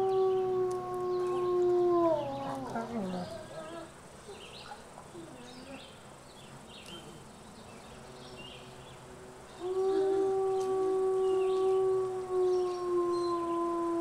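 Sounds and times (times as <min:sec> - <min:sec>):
wolf howling: 0:00.0 - 0:03.9, 0:09.6 - 0:14.0.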